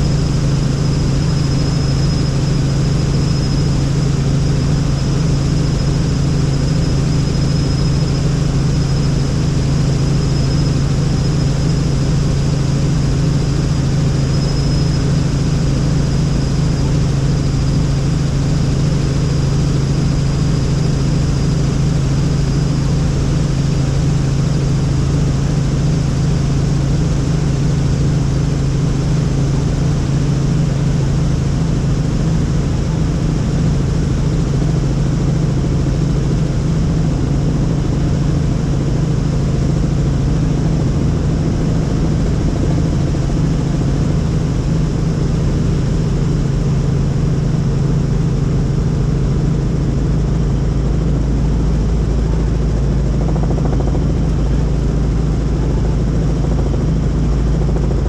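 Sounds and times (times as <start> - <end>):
helicopter rotor and engine drone: 0.0 - 58.0.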